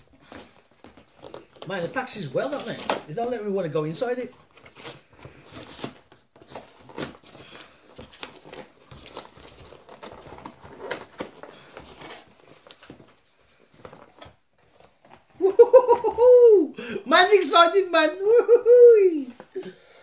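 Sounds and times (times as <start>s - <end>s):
cardboard box being torn open: 4.6s - 7.5s.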